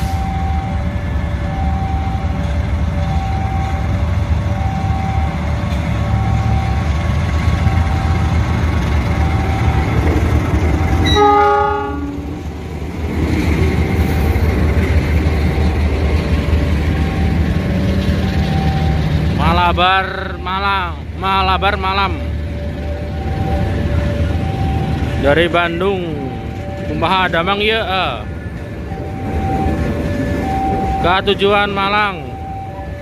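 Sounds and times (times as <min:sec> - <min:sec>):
locomotive and wheels rumbling: 0:00.0 - 0:33.0
two-note warning tone: 0:11.0 - 0:12.3
train horn blast: 0:11.0 - 0:12.4.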